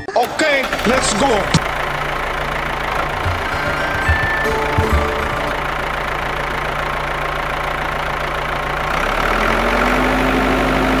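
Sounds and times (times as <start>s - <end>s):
tractor engine running: 0.3s - 10.9s
higher steady tone: 3.0s - 7.0s.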